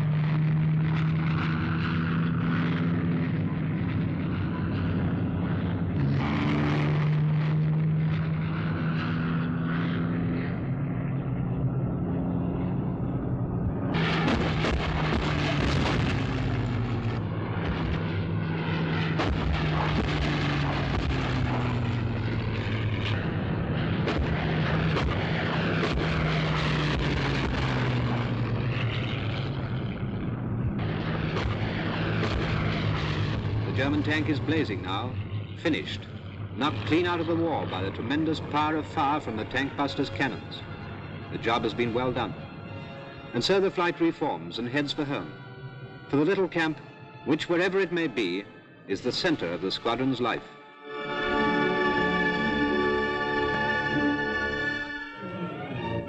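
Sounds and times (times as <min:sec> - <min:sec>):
piston aircraft engines droning: 0:00.0 - 0:56.0
sharp cracks: 0:14.0 - 0:18.0, 0:19.0 - 0:23.2, 0:23.9 - 0:29.0, 0:30.8 - 0:34.0.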